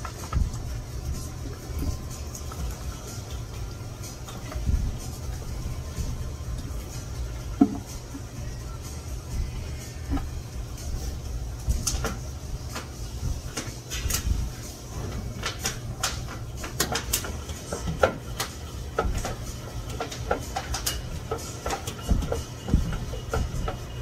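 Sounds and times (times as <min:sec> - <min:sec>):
kitchen things clicking and knocking: 0:11.6 - 0:24.0.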